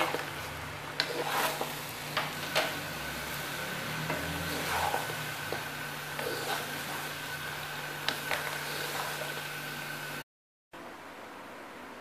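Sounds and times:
spoon stirring pasta: 0:00.0 - 0:02.9, 0:03.9 - 0:09.4.

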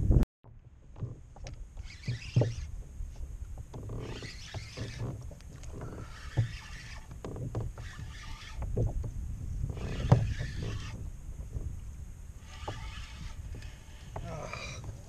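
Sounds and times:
spinning reel cranking: 0:03.8 - 0:07.2, 0:07.8 - 0:08.7, 0:09.7 - 0:11.0, 0:12.4 - 0:14.8.

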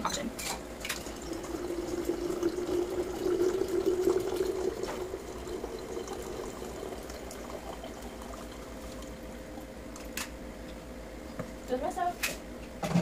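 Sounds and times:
water pouring into a pitcher: 0:00.8 - 0:10.0
water trickling and dripping: 0:00.9 - 0:10.1.

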